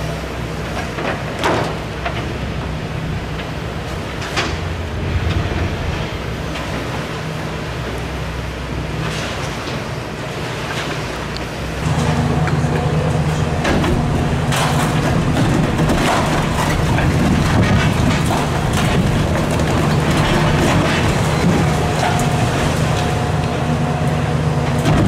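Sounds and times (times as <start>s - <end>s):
excavator diesel engine: 0.0s - 25.0s
concrete cracking and crumbling: 11.9s - 23.7s, 24.6s - 25.0s.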